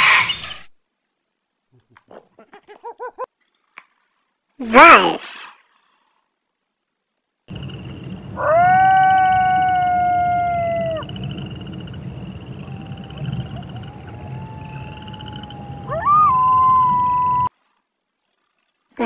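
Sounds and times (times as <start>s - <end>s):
wolf howling: 8.4s - 11.4s, 12.4s - 17.5s.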